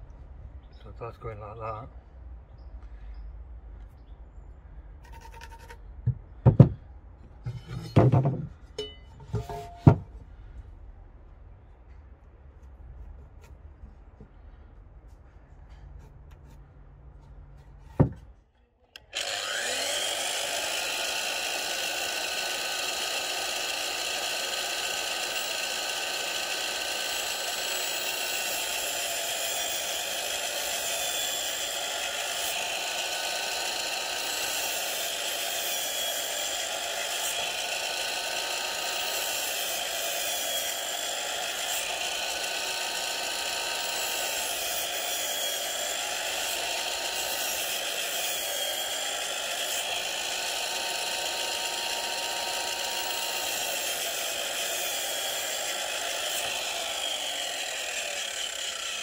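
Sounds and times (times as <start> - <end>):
mitre saw whining through wood: 19.0 - 59.0.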